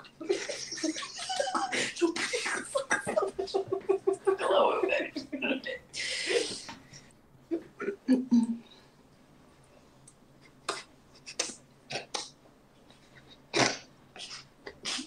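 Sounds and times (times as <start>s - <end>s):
person whispering: 4.4s - 6.8s, 14.2s - 15.0s.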